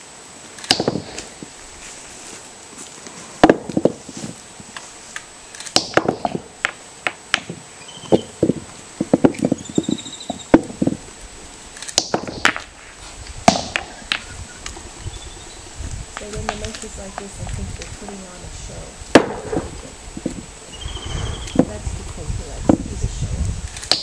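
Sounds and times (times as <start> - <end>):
bird trilling calls: 7.8 - 8.4, 9.3 - 10.6, 20.7 - 21.8.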